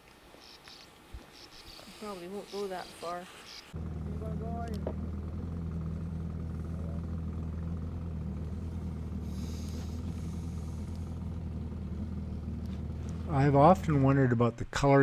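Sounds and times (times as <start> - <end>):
faint hiss: 0.0 - 3.8
boat engine drone: 2.0 - 14.4.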